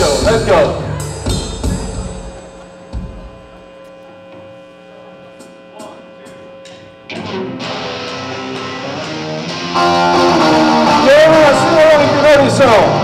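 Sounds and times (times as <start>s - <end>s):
amplifier hum: 0.0s - 13.0s
distorted electric guitar chord: 7.1s - 13.0s.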